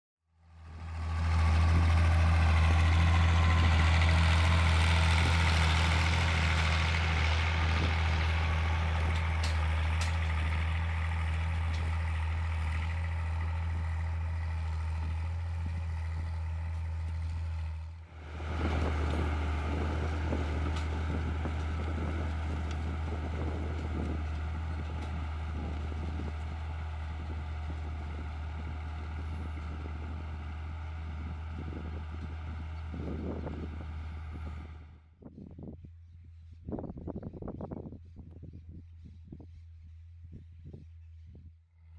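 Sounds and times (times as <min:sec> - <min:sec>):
tractor diesel engine under load: 0:00.4 - 0:35.1
harrow rattling clatter: 0:00.9 - 0:34.7.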